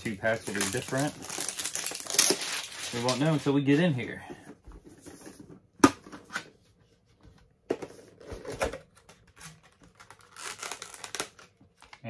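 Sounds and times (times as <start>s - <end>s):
packaging crinkling and tearing: 0.0s - 3.6s, 9.0s - 12.0s.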